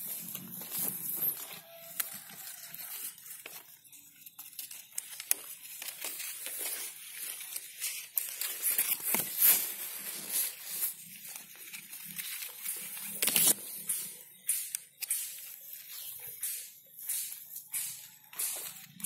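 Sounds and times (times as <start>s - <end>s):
leaves rustling against microphone: 0.0s - 14.1s.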